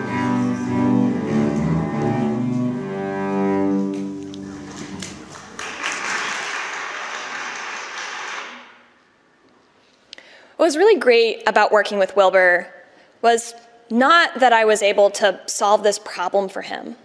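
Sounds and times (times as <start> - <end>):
cello duet: 0.0 - 5.3
applause: 4.4 - 8.9.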